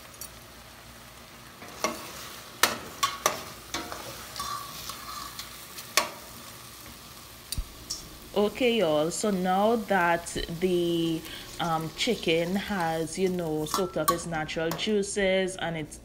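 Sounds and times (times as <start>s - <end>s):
chicken sizzling in a pot: 0.0s - 14.9s.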